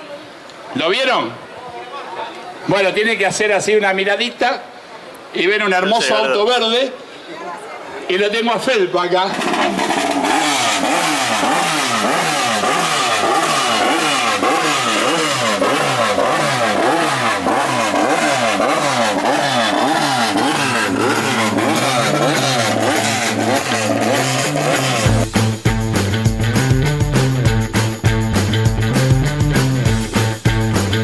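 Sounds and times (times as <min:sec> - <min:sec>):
race car engine revving: 0:09.3 - 0:27.9.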